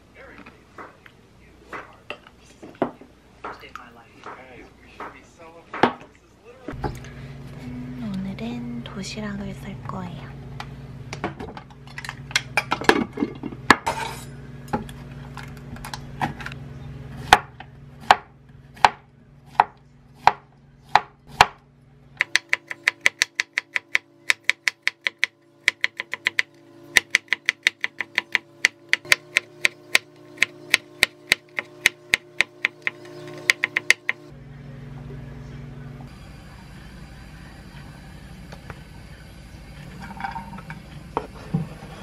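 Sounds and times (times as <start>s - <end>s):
knife chopping on board: 17.2s - 21.6s, 22.2s - 34.2s.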